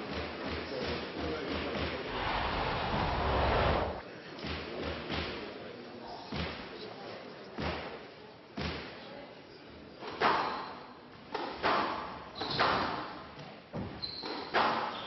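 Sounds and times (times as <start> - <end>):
court shoes squeaking: 12.4 - 12.9, 13.8 - 15.0.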